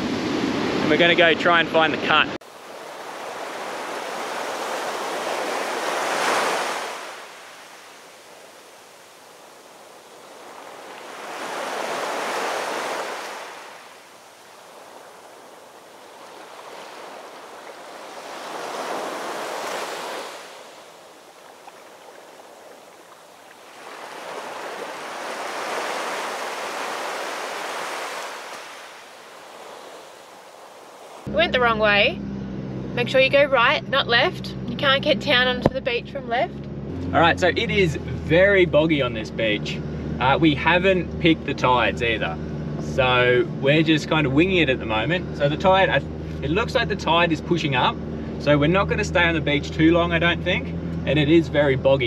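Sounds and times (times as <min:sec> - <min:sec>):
surf breaking on beach: 0:00.0 - 0:31.3.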